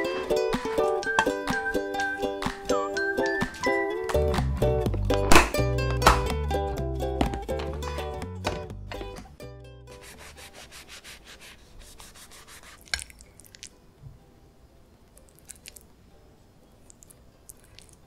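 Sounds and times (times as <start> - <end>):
background music: 0.0 - 11.2
knife rasping through bread roll: 9.9 - 13.0.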